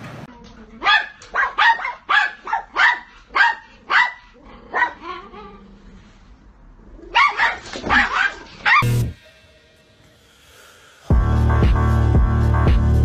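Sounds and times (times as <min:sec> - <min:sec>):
dog barking: 0:00.8 - 0:05.1, 0:07.1 - 0:08.9.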